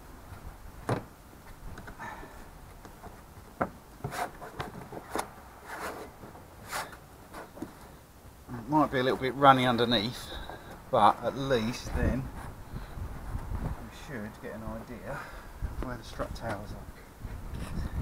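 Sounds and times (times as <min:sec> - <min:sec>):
hands rubbing plastic panel: 0:04.0 - 0:07.9.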